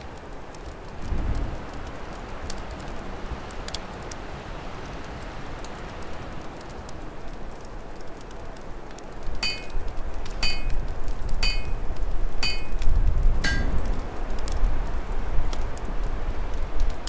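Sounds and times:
storm wind rumble: 0:00.0 - 0:04.2, 0:07.0 - 0:17.0
fire crackling: 0:00.0 - 0:17.0
ringing metallic strikes: 0:09.4 - 0:09.8, 0:10.4 - 0:10.8, 0:11.4 - 0:12.8, 0:13.4 - 0:13.9.

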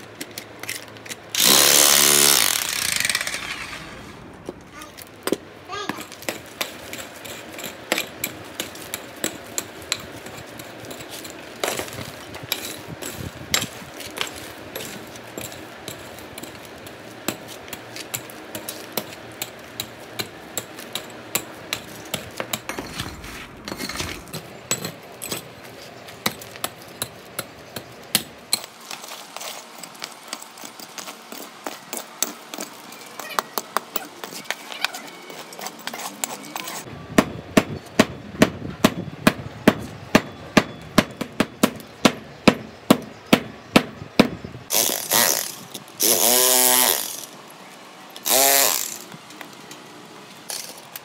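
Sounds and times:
pick striking concrete rubble: 0:17.2 - 0:25.5.

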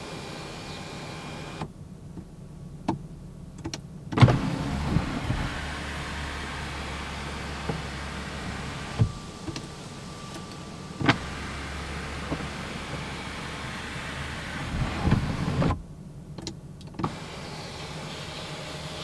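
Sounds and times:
sunroof motor hum: 0:04.2 - 0:15.8.

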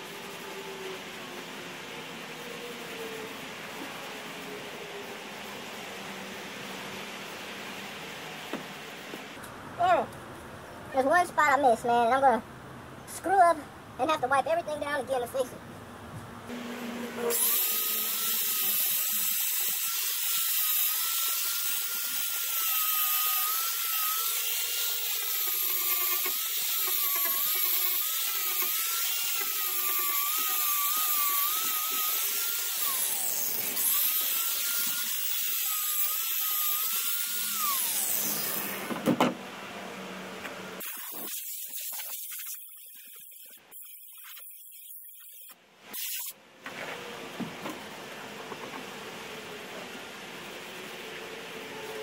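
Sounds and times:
angle grinder grinding fiberglass: 0:16.5 - 0:39.0.

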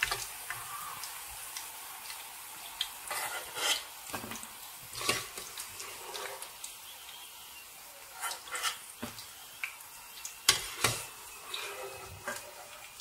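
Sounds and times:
food deep-frying in hot oil: 0:00.0 - 0:13.0
metal skimmer scraping a pan: 0:03.1 - 0:03.9, 0:04.9 - 0:06.5, 0:08.1 - 0:08.9, 0:10.5 - 0:12.9.

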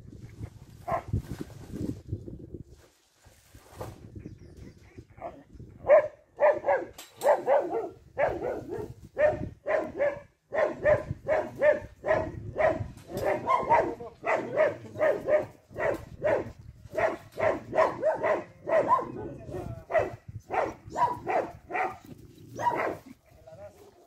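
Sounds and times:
dog barking: 0:00.9 - 0:01.1, 0:05.8 - 0:22.0, 0:22.6 - 0:23.1.

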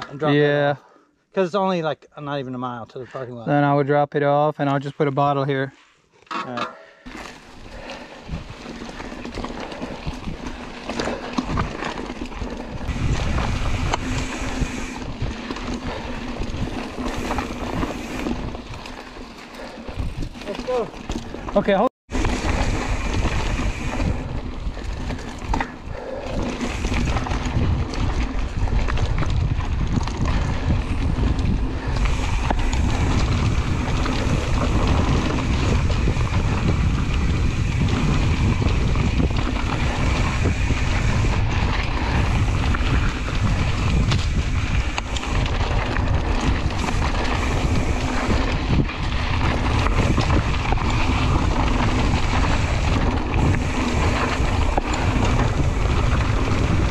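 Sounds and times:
bike rattling and clicking: 0:06.2 - 0:56.9
low rumble of bike tyres: 0:07.0 - 0:56.9
wind buffeting microphone: 0:07.4 - 0:56.9.

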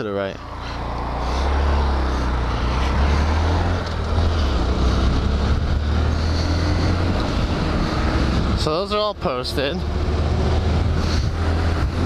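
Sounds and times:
wind rumble on microphone: 0:02.3 - 0:08.8, 0:10.0 - 0:12.0.

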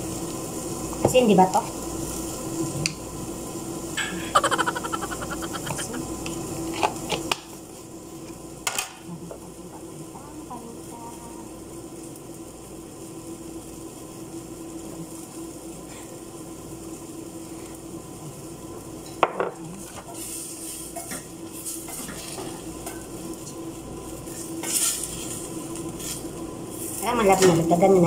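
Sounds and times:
food sizzling in a pot: 0:00.0 - 0:05.6, 0:06.4 - 0:28.0
background hum: 0:04.0 - 0:06.4.

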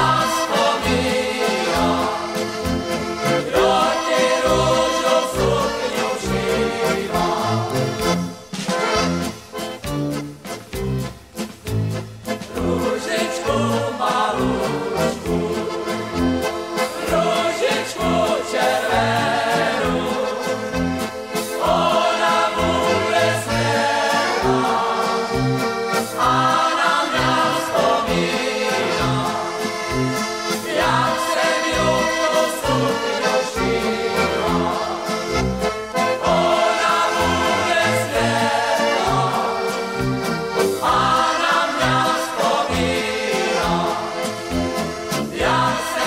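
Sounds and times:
folk dance band playing: 0:00.0 - 0:46.0
steady bass beat: 0:06.3 - 0:17.3.

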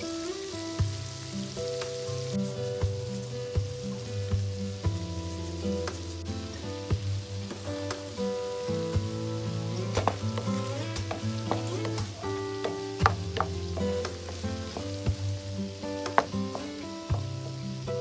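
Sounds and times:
shrimp sizzling in frying pan: 0:00.0 - 0:18.0
soft background music: 0:00.0 - 0:18.0
spatula knocking pan: 0:09.9 - 0:15.2, 0:16.0 - 0:17.3.

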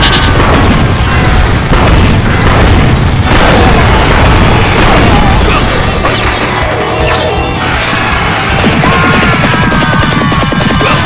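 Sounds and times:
booming fire blast: 0:00.0 - 0:06.0
background music: 0:00.3 - 0:11.0.

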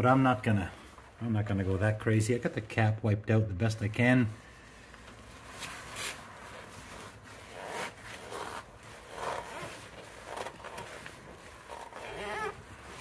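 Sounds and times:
cloth rustling: 0:04.5 - 0:13.0.

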